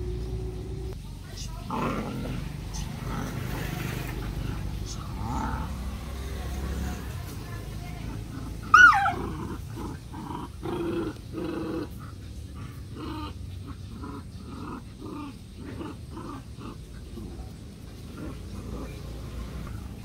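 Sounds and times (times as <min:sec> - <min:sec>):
puppies growling: 0:01.6 - 0:20.0
puppy yelping: 0:08.6 - 0:09.4.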